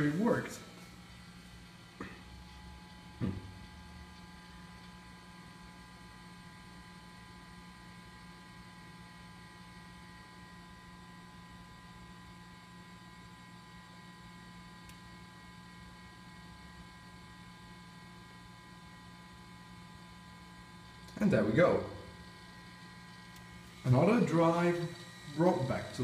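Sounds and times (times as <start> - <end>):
computer hum: 0.0 - 26.0
thin steady tones: 22.8 - 26.0.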